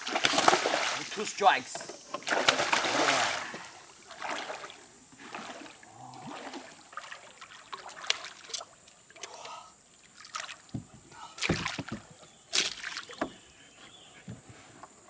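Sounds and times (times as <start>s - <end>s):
fish splash: 0.0s - 1.2s, 2.2s - 5.7s
water lapping: 0.0s - 15.0s.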